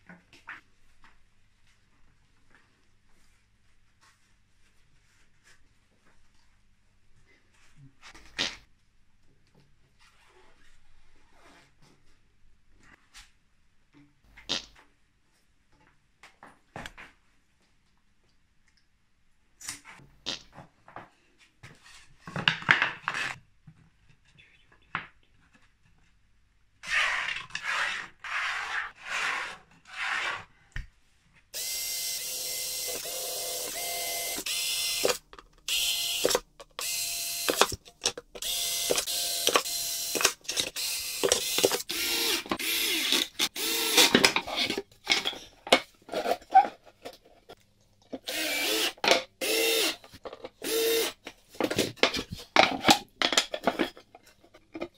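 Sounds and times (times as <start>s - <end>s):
cordless drill driving screws: 31.6s - 44.4s, 48.2s - 51.2s.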